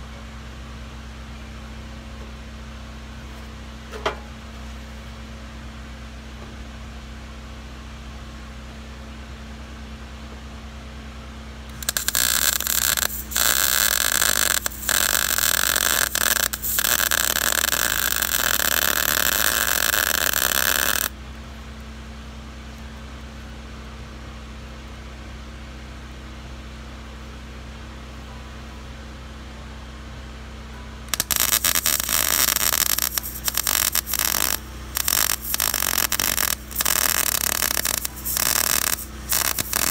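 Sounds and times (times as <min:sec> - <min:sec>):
steady low hum: 0:00.0 - 0:39.9
welding arc crackling: 0:11.7 - 0:21.2, 0:31.1 - 0:39.9.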